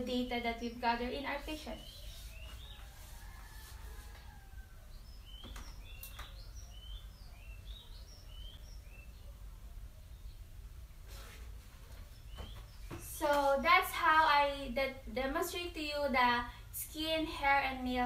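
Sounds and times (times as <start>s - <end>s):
birds chirping: 0.3s - 3.6s, 4.3s - 10.6s, 12.0s - 14.0s.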